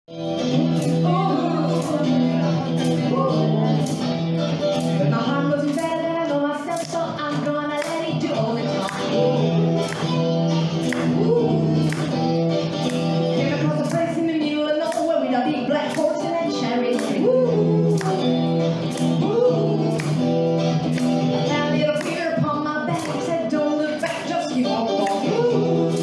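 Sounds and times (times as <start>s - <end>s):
electric guitar: 0.1s - 26.0s
women singing wordless vocals: 1.0s - 4.0s, 5.1s - 10.0s, 10.8s - 12.2s, 13.4s - 18.4s, 19.0s - 20.2s, 21.5s - 26.0s.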